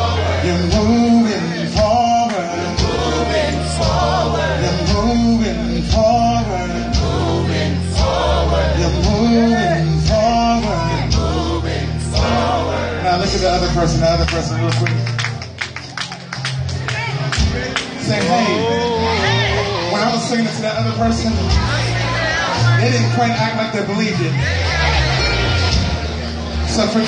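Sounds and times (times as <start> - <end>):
congregation singing along: 0.0 - 14.2, 17.4 - 27.0
man singing lead: 0.0 - 14.2
band playing gospel music: 0.0 - 27.0.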